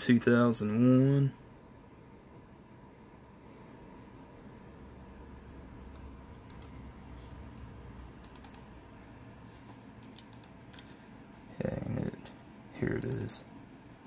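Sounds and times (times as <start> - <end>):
faint low hum: 0.0 - 14.0
computer mouse clicking: 6.3 - 8.7, 10.0 - 11.0, 13.0 - 13.4.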